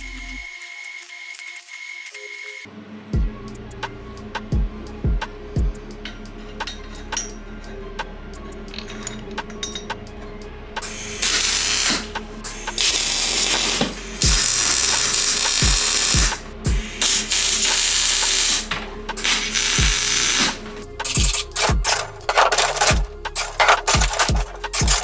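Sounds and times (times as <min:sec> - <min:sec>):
welding arc crackling and hissing: 0:00.0 - 0:02.6, 0:10.8 - 0:21.3
music with deep beat: 0:03.2 - 0:25.0.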